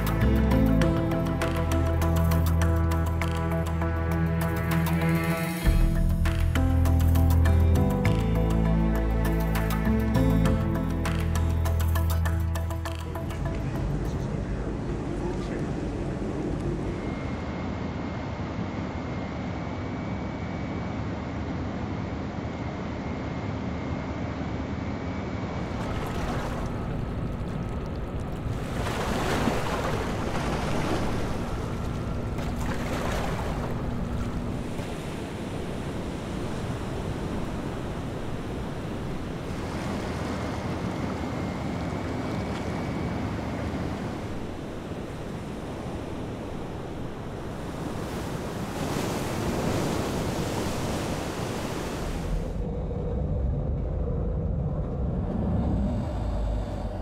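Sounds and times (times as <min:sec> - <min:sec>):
waves breaking: 0:25.5 - 0:52.6.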